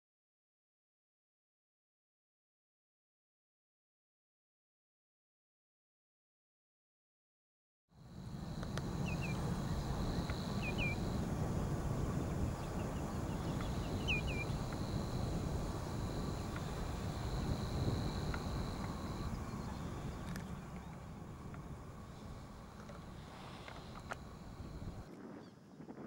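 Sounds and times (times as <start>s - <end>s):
faint high-pitched tone: 8.0s - 25.1s
bird chirping: 8.2s - 25.1s.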